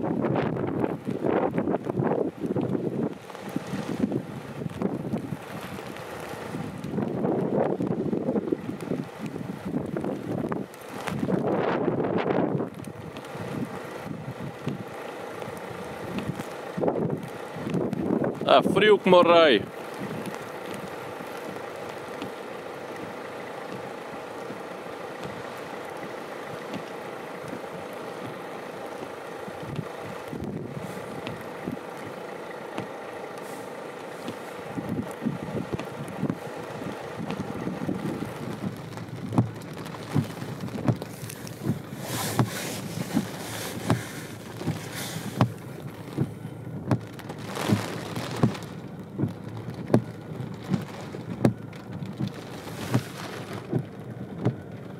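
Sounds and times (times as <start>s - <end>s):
vehicle idling hum: 0.0s - 54.9s
sleet and hail tapping: 31.1s - 54.7s.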